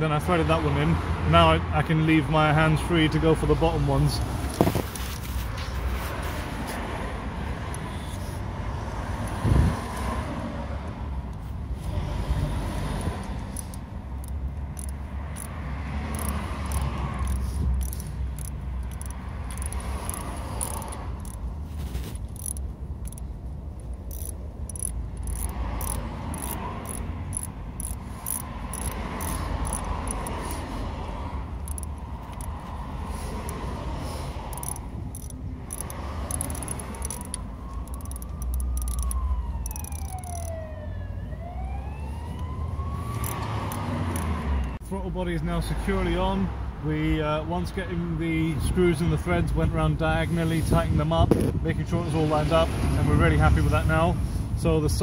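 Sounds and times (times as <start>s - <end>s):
socket ratchet clicking: 13.0s - 30.7s, 31.5s - 33.6s, 34.4s - 40.6s, 43.2s - 44.8s
siren rising in pitch: 37.6s - 43.7s.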